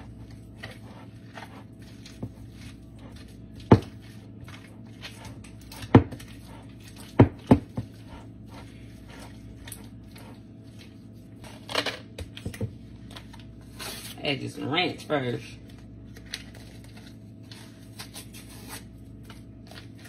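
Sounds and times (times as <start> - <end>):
spatula stirring thick mix: 0.0 - 11.7.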